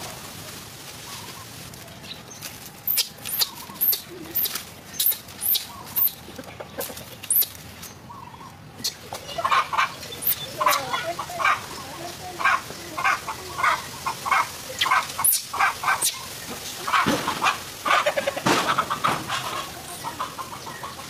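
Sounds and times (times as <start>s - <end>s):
sharp high-pitched animal calls: 2.9s - 6.2s, 12.4s - 16.3s
rapid clucking calls: 2.9s - 21.0s.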